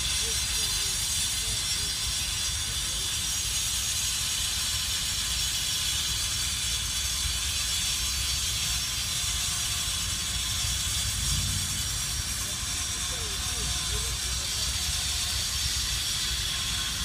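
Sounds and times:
even hiss: 0:00.0 - 0:17.0
low unsteady rumble: 0:10.5 - 0:16.7.

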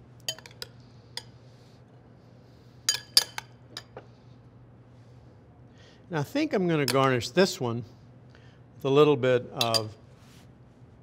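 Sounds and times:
metal spoon clinking on glass: 0:00.3 - 0:00.7, 0:02.9 - 0:03.9, 0:09.6 - 0:10.0.

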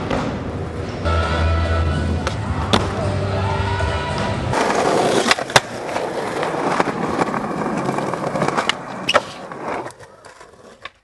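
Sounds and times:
skateboard wheels rolling on asphalt: 0:04.5 - 0:11.0
skateboard clacks: 0:04.6 - 0:11.0.

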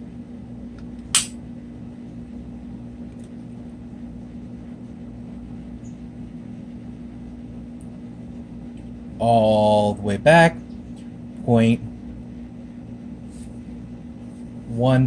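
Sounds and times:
fan humming: 0:00.0 - 0:15.0
sharp click: 0:01.1 - 0:01.4.

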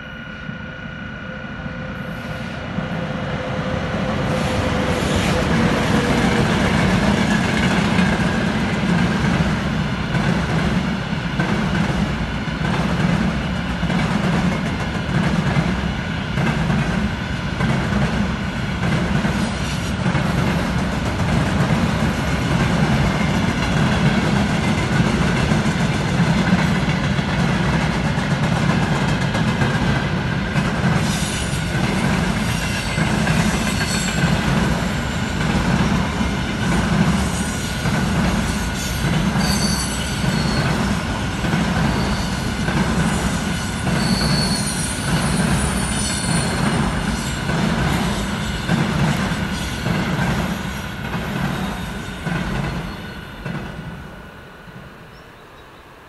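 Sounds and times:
freight train wheels rumbling: 0:00.0 - 0:56.0
wheel squeals: 0:31.1 - 0:34.8, 0:38.6 - 0:41.1, 0:41.8 - 0:53.6.

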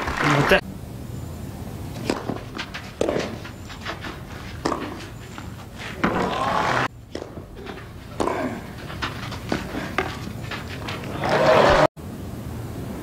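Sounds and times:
racket hitting tennis ball: 0:01.9 - 0:11.9.

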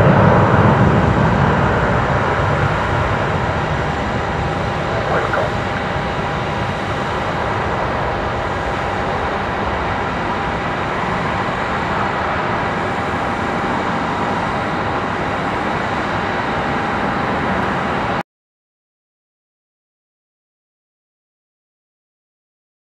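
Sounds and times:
jet engines at takeoff power: 0:00.0 - 0:18.2.

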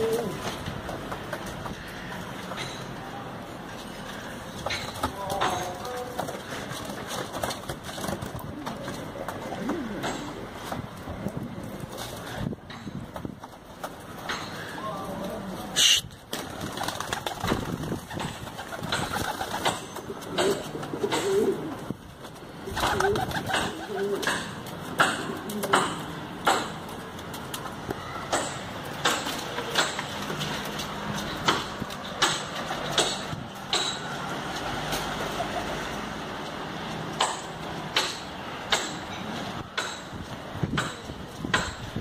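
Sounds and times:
pigeon cooing: 0:00.0 - 0:00.5, 0:08.4 - 0:10.6, 0:19.0 - 0:21.9, 0:22.6 - 0:26.1, 0:35.2 - 0:35.9.

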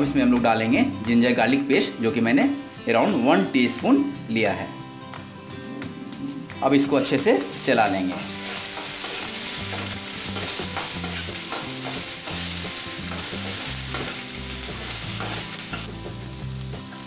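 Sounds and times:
vegetables sizzling in oil: 0:05.6 - 0:17.0
spatula scraping a pan: 0:08.1 - 0:14.3.

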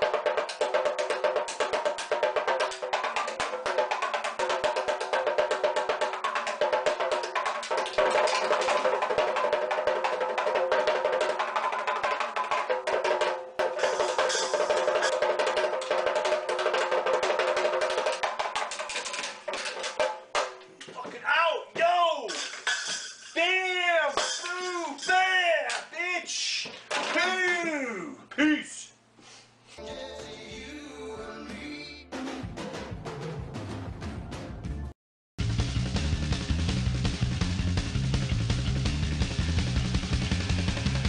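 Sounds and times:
small drums played fast: 0:00.0 - 0:25.9, 0:35.4 - 0:41.0.

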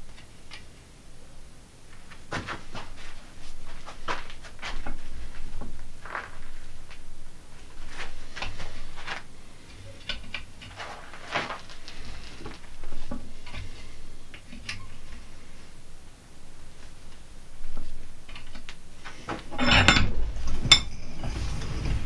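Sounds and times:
steel wire clinking and scraping: 0:04.1 - 0:15.7, 0:17.6 - 0:22.0.

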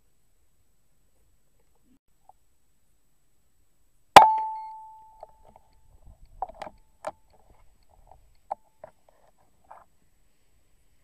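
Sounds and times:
small clicks and knocks: 0:05.2 - 0:09.9.

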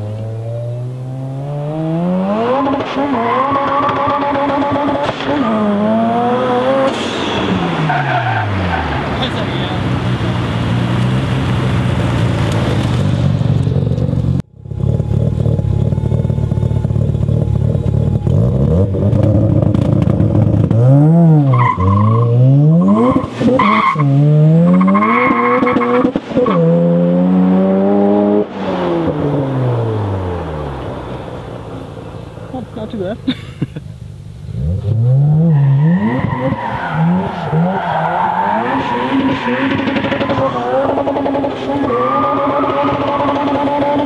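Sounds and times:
rotary engine revving and idling: 0:00.0 - 0:32.7, 0:34.4 - 0:44.0.

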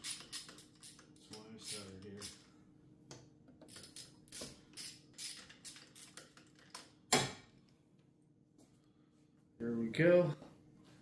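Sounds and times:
hand ratchet clicking: 0:00.0 - 0:02.4.

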